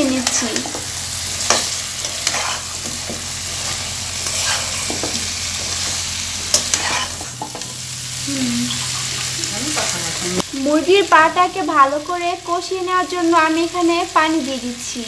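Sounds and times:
sizzling in frying pan: 0.0 - 15.0
spatula scraping pan: 0.2 - 7.8.

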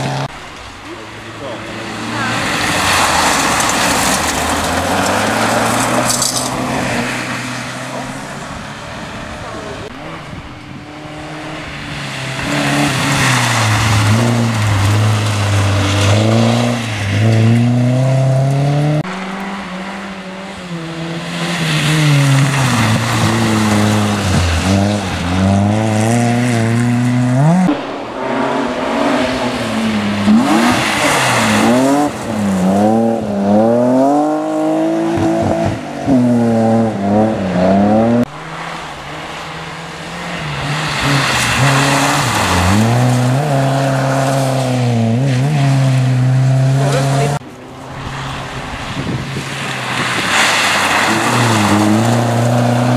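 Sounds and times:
rally car engines revving: 0.0 - 52.9
tyres hissing on gravel: 1.9 - 7.2, 47.8 - 52.9.

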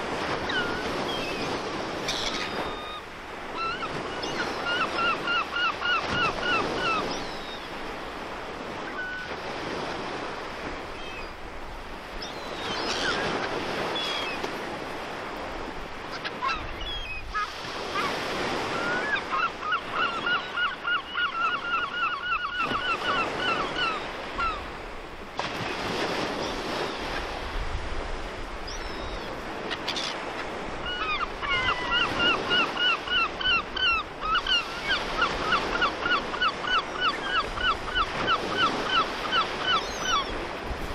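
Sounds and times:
surf washing: 0.0 - 40.9
gulls calling: 0.3 - 11.4, 12.1 - 24.8, 28.6 - 40.6.

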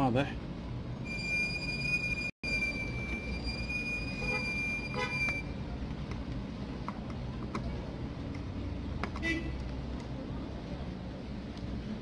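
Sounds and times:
high beep-like tone: 1.0 - 5.5.

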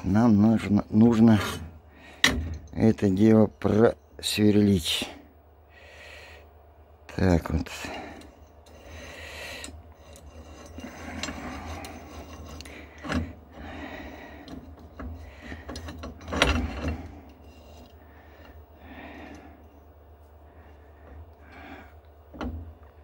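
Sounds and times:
vise metal scraping and clicking: 8.1 - 18.6.

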